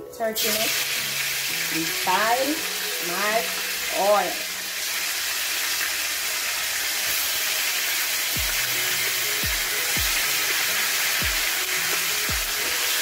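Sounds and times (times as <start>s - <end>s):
background music: 0.0s - 13.0s
meat sizzling in hot oil: 0.4s - 13.0s
deep bass drum beating: 8.4s - 8.7s, 9.4s - 10.2s.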